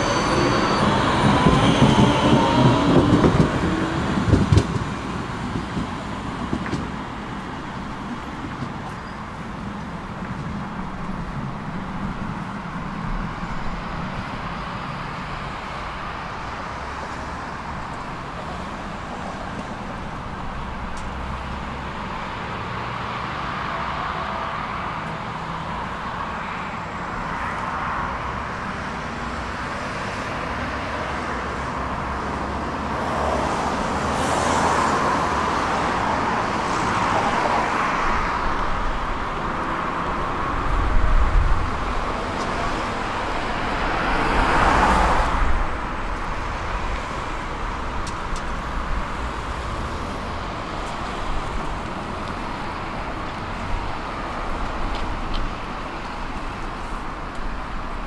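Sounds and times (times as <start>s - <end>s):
cars driving past: 0.0s - 58.0s.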